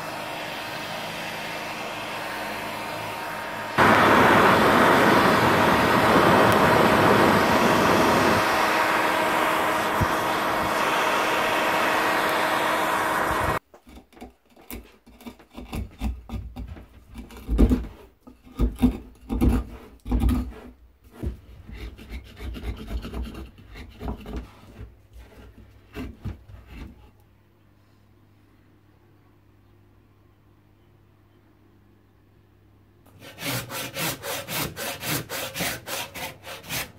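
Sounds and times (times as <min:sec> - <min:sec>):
heat gun blowing with hum: 0:00.0 - 0:13.6.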